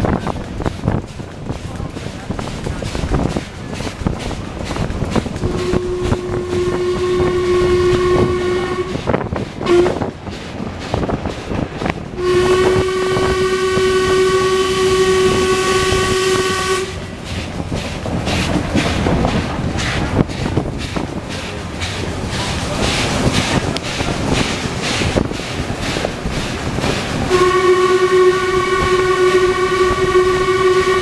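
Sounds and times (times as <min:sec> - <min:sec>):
wheels clattering on rails: 0:00.0 - 0:31.0
steam whistle blowing: 0:05.4 - 0:10.1, 0:12.2 - 0:17.0, 0:27.3 - 0:31.0.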